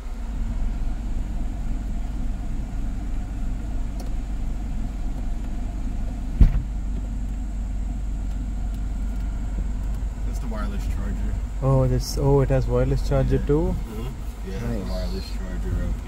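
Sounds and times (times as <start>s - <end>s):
car engine idling: 0.0s - 16.0s
short thump: 6.4s - 7.1s.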